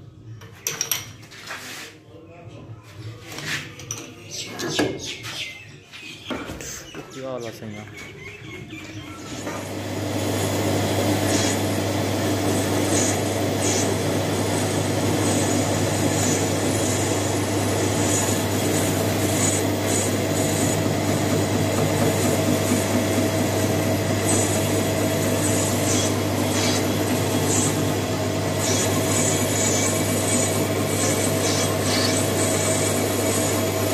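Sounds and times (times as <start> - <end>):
lathe motor hum: 9.2 - 33.9
lathe tool cutting metal: 9.3 - 33.9
cutting tool squeals: 11.1 - 11.8, 12.5 - 33.8.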